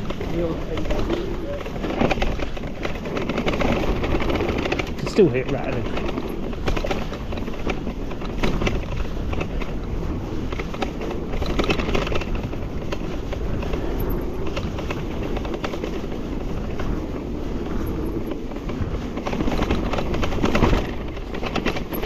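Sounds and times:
bike tyre noise: 0.0s - 22.0s
wind on microphone: 0.0s - 22.0s.

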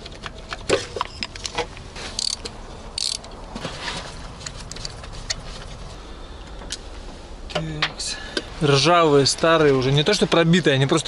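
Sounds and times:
socket wrench clicks and scraping: 0.0s - 3.4s.

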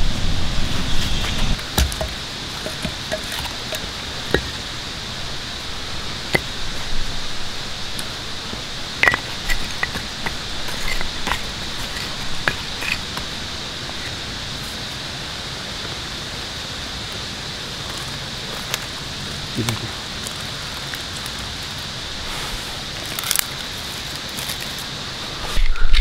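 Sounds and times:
steady outdoor hiss: 0.0s - 26.0s
sticks and twigs set down: 1.6s - 4.6s.

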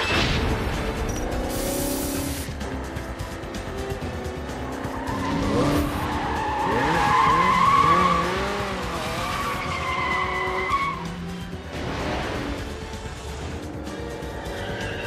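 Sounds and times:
car tyres squealing: 4.8s - 11.2s, 14.3s - 15.0s.

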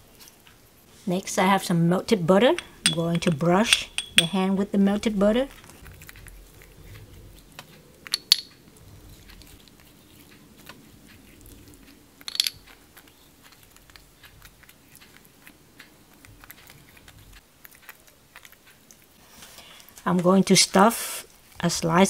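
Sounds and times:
brush clinking ceramic bowl: 2.4s - 4.5s.

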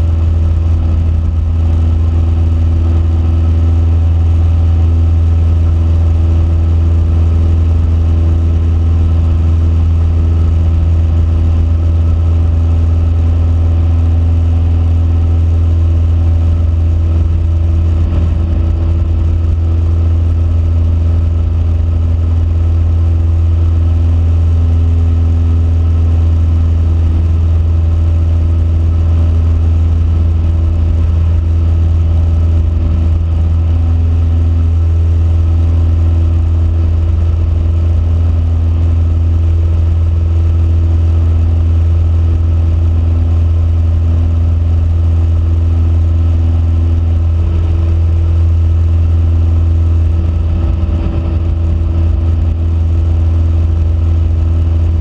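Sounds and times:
light aircraft engine drone: 0.0s - 55.0s.

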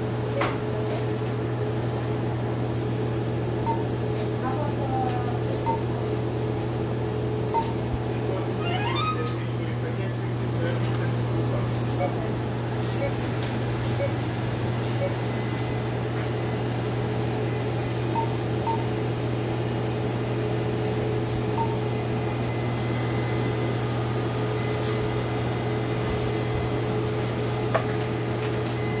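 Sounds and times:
cooling fans and pump humming: 0.0s - 29.0s
short beeps: 8.6s - 9.4s, 13.8s - 14.2s, 14.8s - 15.2s.

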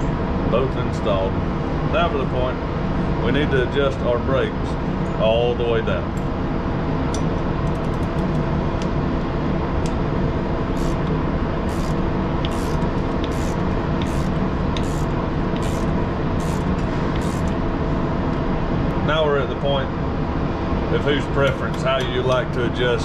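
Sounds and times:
low mechanical hum: 0.0s - 23.0s
wrench ratcheting clicks: 10.8s - 11.1s, 11.7s - 17.6s.

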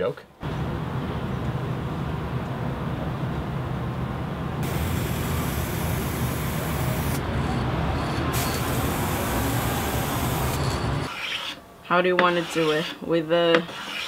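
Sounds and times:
aerosol spray can spraying: 4.6s - 7.2s, 8.4s - 10.6s.

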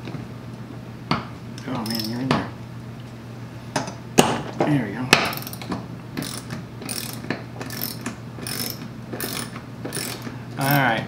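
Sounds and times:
ratchet wrench clicking: 1.8s - 2.2s, 5.3s - 10.9s.

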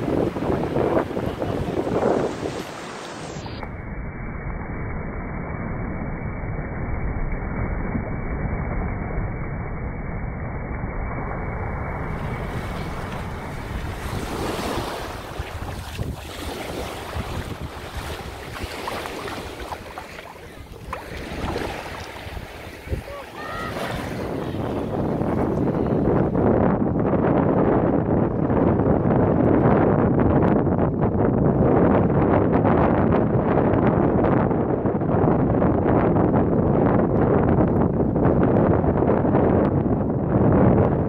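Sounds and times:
small waves washing on beach: 0.0s - 3.4s, 11.6s - 26.3s
wind buffeting microphone: 0.0s - 3.7s, 11.2s - 41.0s.

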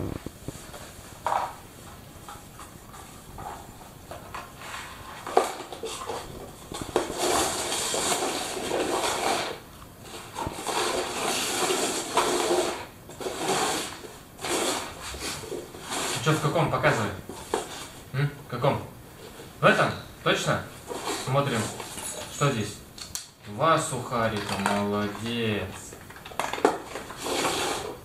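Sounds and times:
cups scraping across wooden floor: 0.0s - 18.0s, 20.7s - 22.4s, 26.4s - 28.0s.

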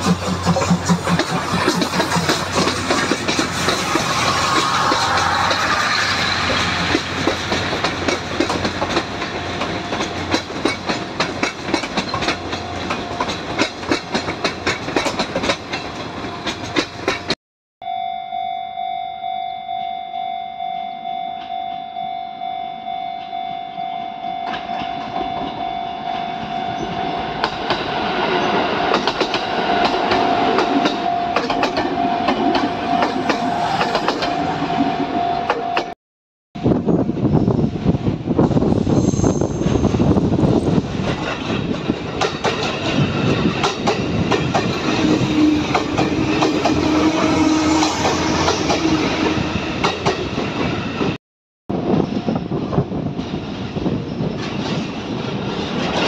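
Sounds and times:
train wheels clattering over rail joints: 0.0s - 17.4s, 40.6s - 47.0s.

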